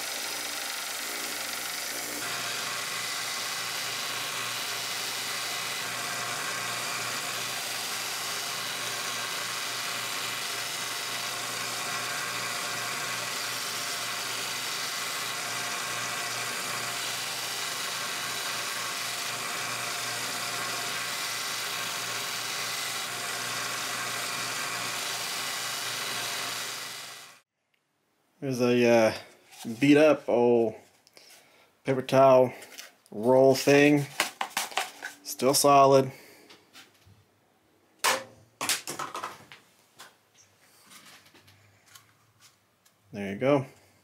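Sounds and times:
belt grinder motor hum: 0:00.0 - 0:27.4.

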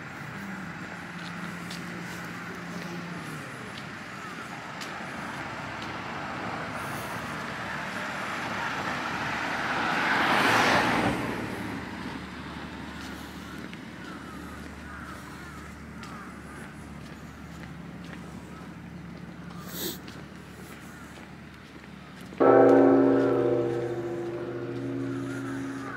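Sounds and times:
street ambience: 0:00.0 - 0:25.9
car passing close by: 0:06.6 - 0:13.0, 0:22.4 - 0:25.9.

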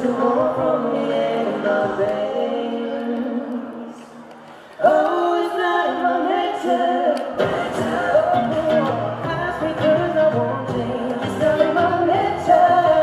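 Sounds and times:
two men singing in harmony: 0:00.0 - 0:04.2, 0:04.8 - 0:13.0
low guitar accompaniment: 0:07.4 - 0:13.0.

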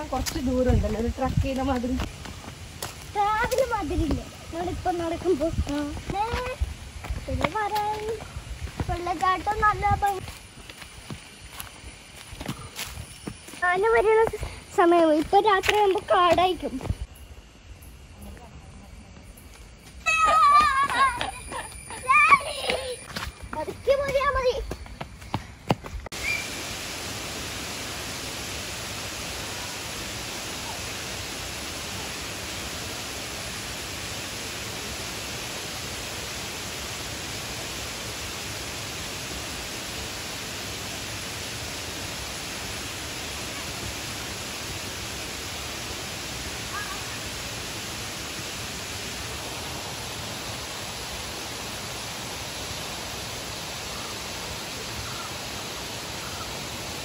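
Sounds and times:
waterfall rushing: 0:26.2 - 0:57.0.

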